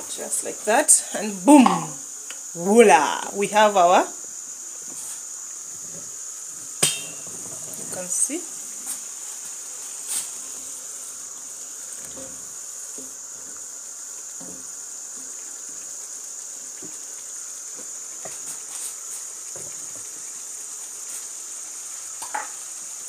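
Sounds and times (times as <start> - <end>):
stew simmering hiss: 0.0 - 23.0.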